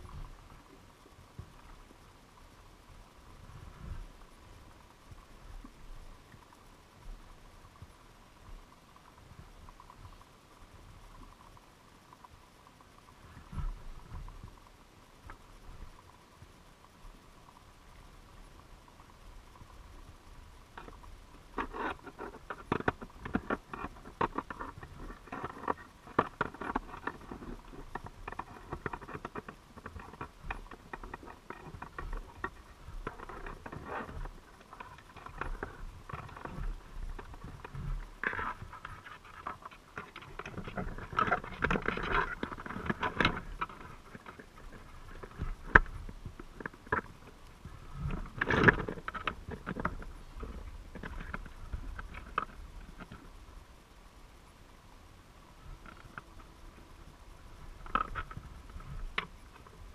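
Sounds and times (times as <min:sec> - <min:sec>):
underwater clicks and crackles: 0:00.0 - 0:54.2, 0:55.4 - 0:59.9.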